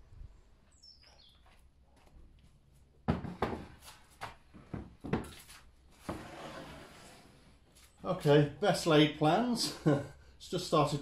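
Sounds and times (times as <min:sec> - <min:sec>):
knocks on a wooden board: 0:03.1 - 0:03.7.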